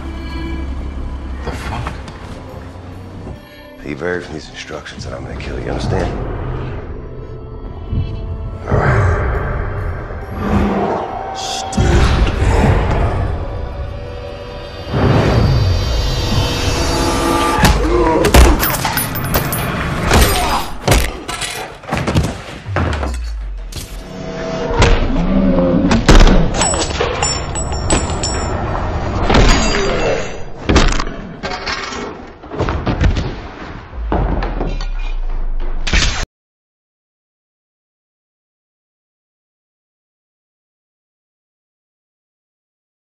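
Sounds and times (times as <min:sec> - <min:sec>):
faint music score: 0:00.0 - 0:06.3.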